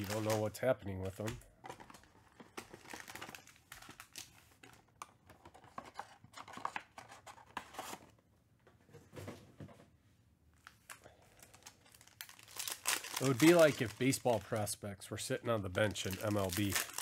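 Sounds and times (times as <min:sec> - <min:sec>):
foil packs crinkling: 0:00.0 - 0:04.9, 0:10.6 - 0:14.8, 0:15.4 - 0:17.0.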